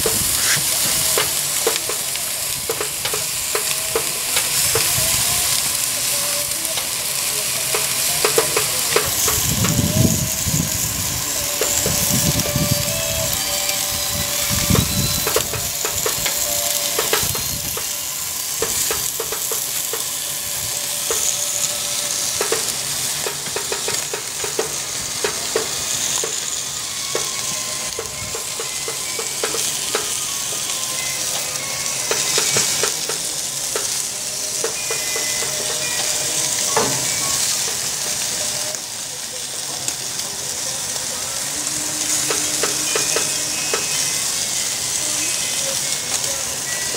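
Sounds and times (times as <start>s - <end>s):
fat crackling and popping: 0.0s - 37.8s
meat sizzling on a grill: 0.0s - 46.9s.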